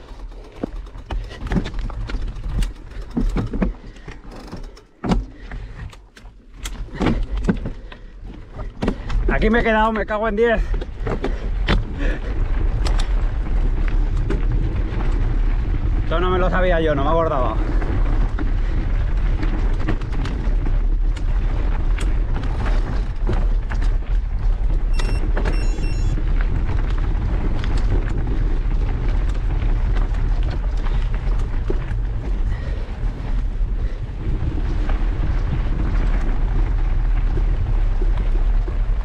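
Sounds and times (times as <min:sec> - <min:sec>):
mountain bike rattling over rocks: 0:00.0 - 0:39.0
wind buffeting microphone: 0:10.6 - 0:39.0.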